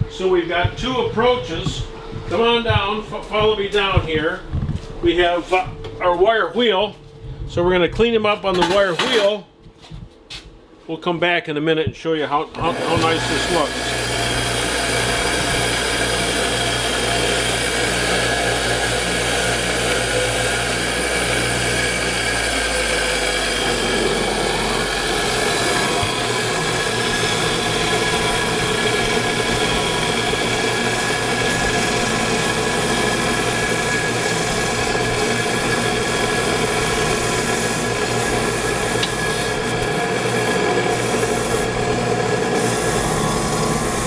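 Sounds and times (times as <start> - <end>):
bench grinder wire wheel scouring: 12.6 - 44.0.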